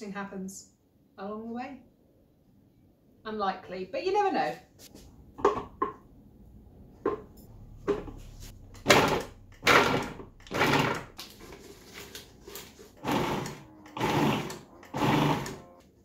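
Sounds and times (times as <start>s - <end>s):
food processor motor bursts: 8.8s - 11.1s, 13.0s - 15.8s.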